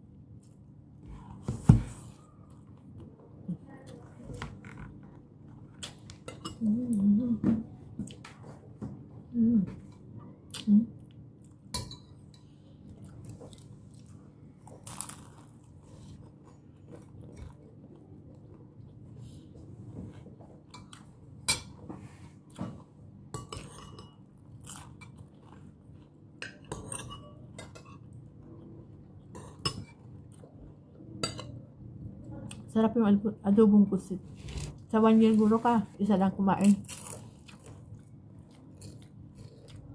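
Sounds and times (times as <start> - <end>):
steady low hum: 0.0 - 39.9
chewing: 36.8 - 39.9.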